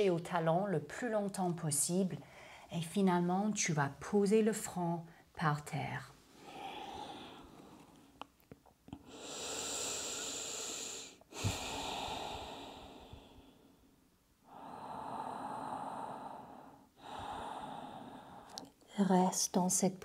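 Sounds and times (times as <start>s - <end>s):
person breathing deeply: 2.2s - 2.7s, 6.4s - 7.9s, 9.0s - 18.6s.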